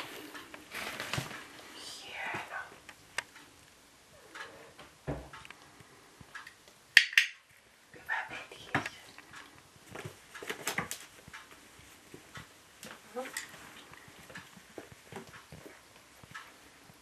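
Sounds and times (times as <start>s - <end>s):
kittens moving knocks and rustles: 0.0s - 2.9s.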